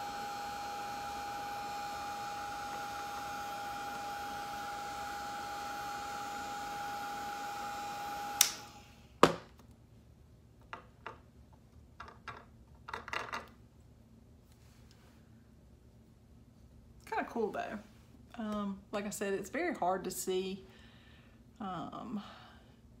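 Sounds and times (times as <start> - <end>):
hair dryer whirring: 0.0 - 9.3
hair dryer knocking down: 0.0 - 9.4
hair dryer switch click: 8.3 - 8.7.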